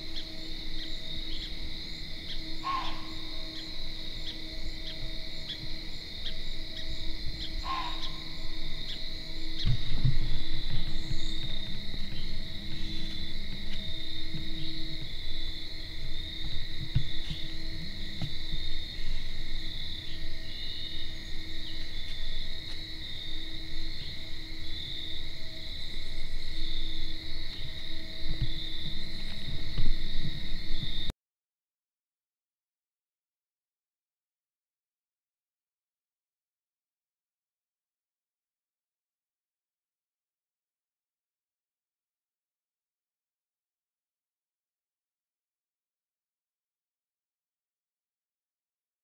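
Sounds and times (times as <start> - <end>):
crickets trilling: 0.0 - 31.1
insects chirping: 0.0 - 31.1
low rumble on microphone: 0.0 - 31.1.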